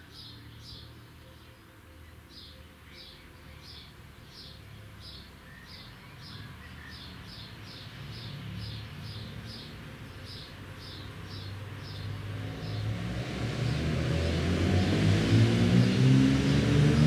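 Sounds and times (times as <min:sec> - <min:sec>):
bird chirping: 0:00.0 - 0:13.0.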